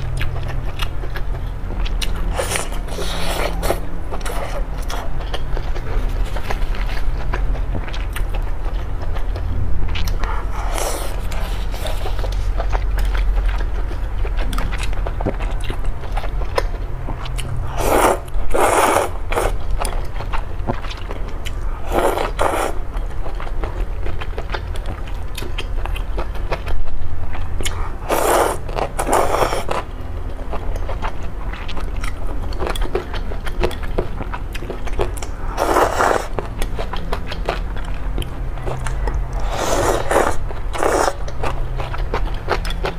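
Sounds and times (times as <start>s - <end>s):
chewing and wet mouth sounds: 0.0s - 42.9s
low steady hum: 0.0s - 42.9s
loud slurps of noodles: 17.7s - 19.6s, 21.8s - 22.8s, 28.0s - 29.7s, 35.6s - 36.3s, 39.4s - 41.2s.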